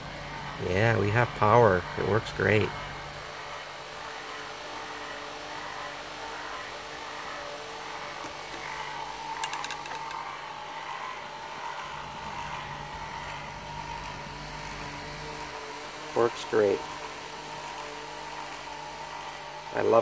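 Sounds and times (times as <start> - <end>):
fan humming: 0.0 - 20.0
fan clip clicking: 9.3 - 10.2.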